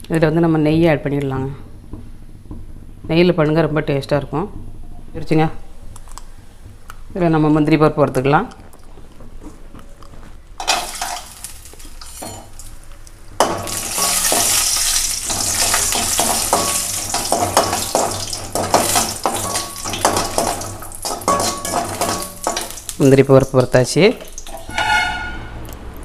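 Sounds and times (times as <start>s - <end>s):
metal ladle clinking and scraping pan: 10.6s - 11.4s, 13.4s - 22.8s, 24.2s - 25.6s
nuts sizzling in hot fat: 10.6s - 24.8s.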